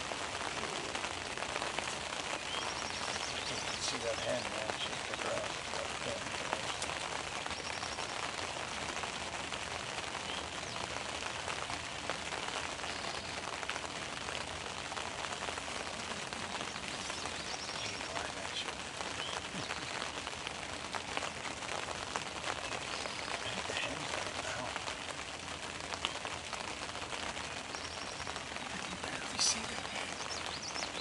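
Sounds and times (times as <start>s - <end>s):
raindrops ticking close by: 0.0s - 31.0s
steady rain falling: 0.0s - 31.0s.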